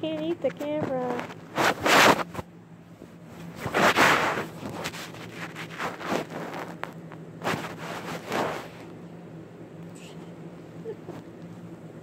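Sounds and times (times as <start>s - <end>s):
rat shuffling over bedding: 0.9s - 8.9s.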